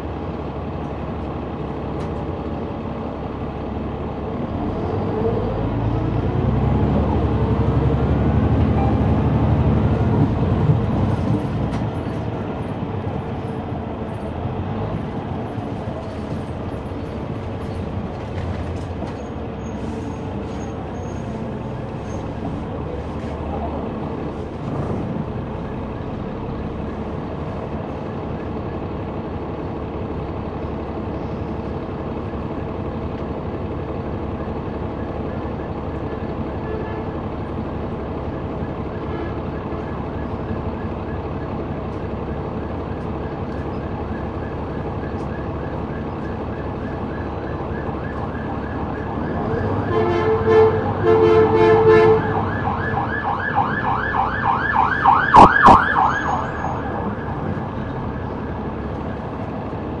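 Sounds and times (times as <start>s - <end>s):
diesel bus engine running: 0.0s - 60.0s
emergency siren passing: 43.2s - 59.4s.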